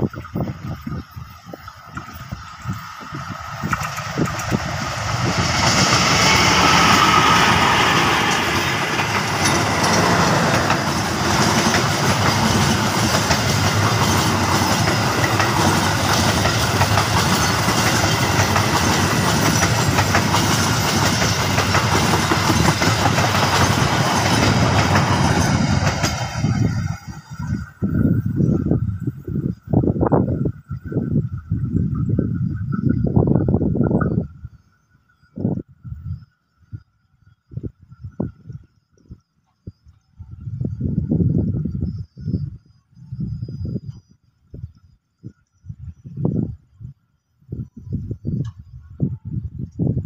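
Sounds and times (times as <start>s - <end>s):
train wheels on rails: 0.4s - 29.8s
locomotive passing at speed: 1.7s - 29.0s.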